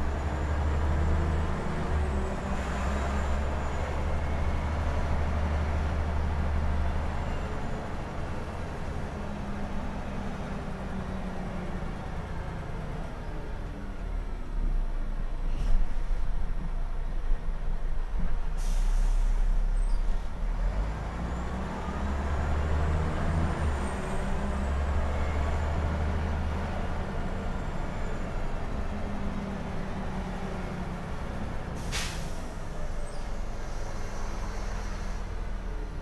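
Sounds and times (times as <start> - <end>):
bus diesel engine drone: 0.0 - 36.0
air brake hisses: 18.6 - 19.6, 31.8 - 35.4.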